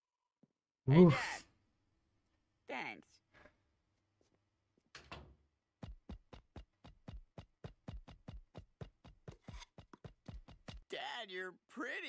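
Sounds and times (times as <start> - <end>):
fast soft cartoon thuds: 5.8 - 10.8.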